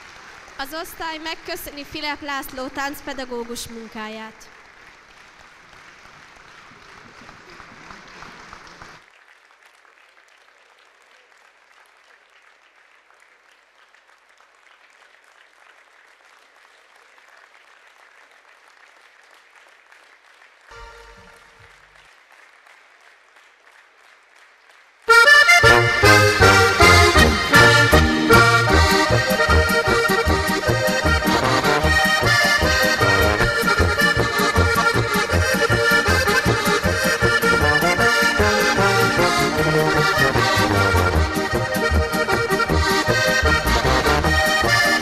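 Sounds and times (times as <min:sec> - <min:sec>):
audience applauding: 0:00.0 - 0:01.3, 0:03.0 - 0:45.0
loud music: 0:25.2 - 0:45.0.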